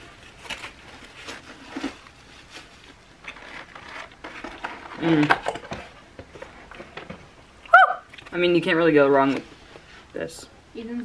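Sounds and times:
foam container crinkling: 0.0s - 7.1s.

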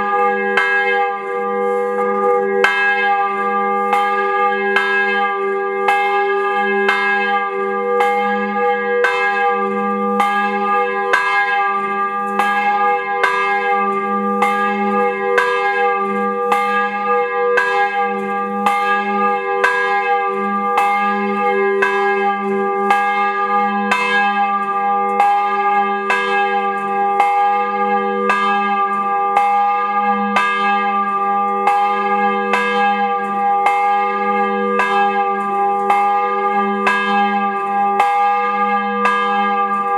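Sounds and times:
large bell tolling: 0.0s - 39.9s.

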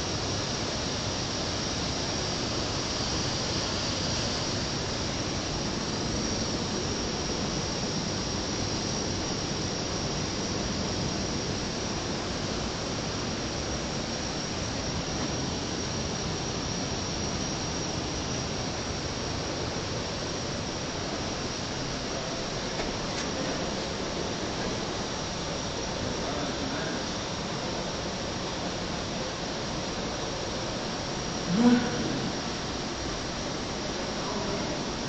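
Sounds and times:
steady hiss: 0.0s - 35.0s
thin high-pitched whine: 0.0s - 35.0s.

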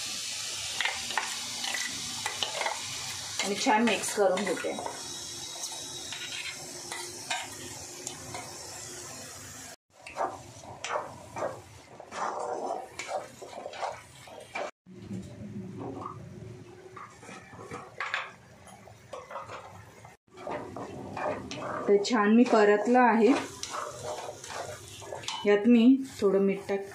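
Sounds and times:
paste sizzling in a pan: 0.0s - 14.8s, 19.7s - 26.9s
spatula scraping a pan: 0.8s - 7.6s, 10.0s - 14.8s, 17.0s - 18.3s, 19.1s - 26.8s
curry boiling and bubbling: 9.7s - 26.9s.

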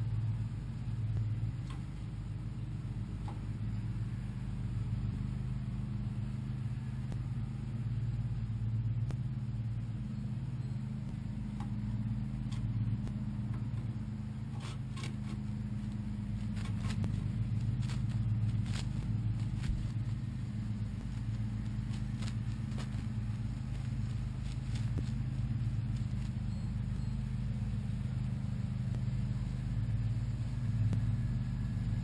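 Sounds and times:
low mechanical hum: 0.0s - 32.0s
chipmunk scratching and rustling: 14.5s - 26.8s.

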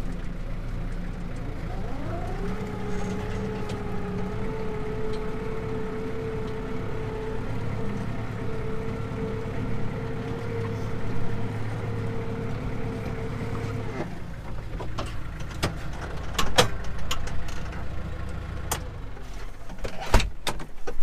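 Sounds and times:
engine whine: 0.0s - 19.6s
tractor engine running: 0.0s - 19.8s
metal clanks and rattles: 14.5s - 17.9s.

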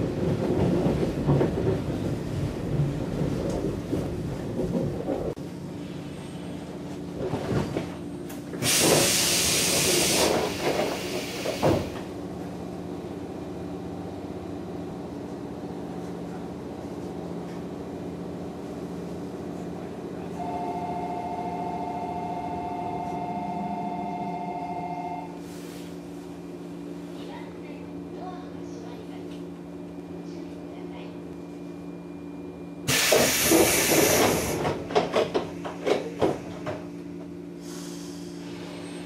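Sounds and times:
low hum of train equipment: 0.0s - 39.0s
air release hiss: 8.6s - 11.9s, 32.9s - 34.6s
two-note electronic tone: 20.4s - 25.4s.

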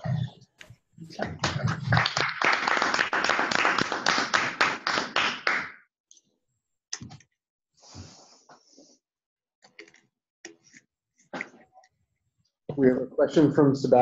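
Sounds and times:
small group applauding: 1.1s - 5.9s.

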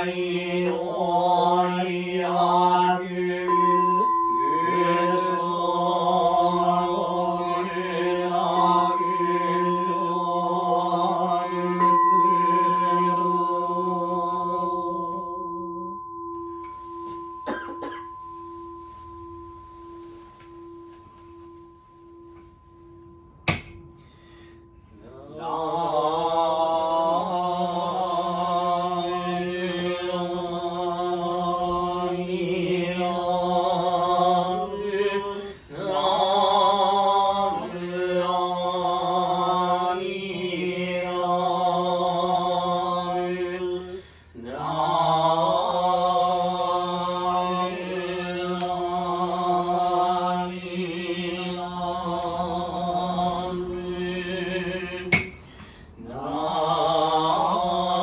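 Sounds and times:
monks chanting in unison: 0.0s - 15.4s, 25.0s - 58.0s
bowl bell ringing: 0.0s - 37.9s, 55.1s - 55.6s.

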